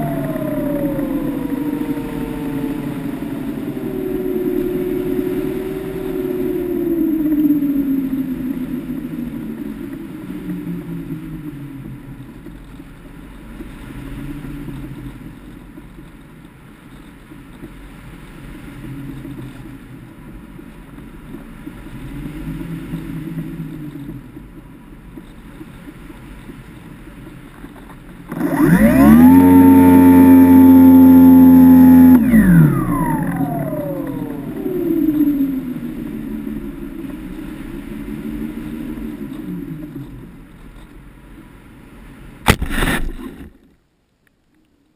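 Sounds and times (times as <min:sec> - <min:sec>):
electric motor and propeller: 0:00.0 - 0:16.2, 0:27.6 - 0:41.5.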